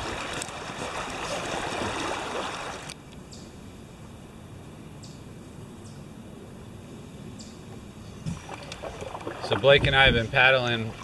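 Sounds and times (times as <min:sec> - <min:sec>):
paddle splashing: 0:00.0 - 0:03.0, 0:08.2 - 0:11.0
rushing river water: 0:00.0 - 0:03.0, 0:08.3 - 0:11.0.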